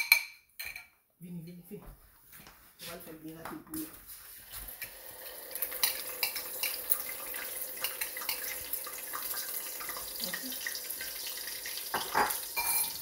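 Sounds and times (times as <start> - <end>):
eggs sizzling in a pan: 4.2 - 13.0.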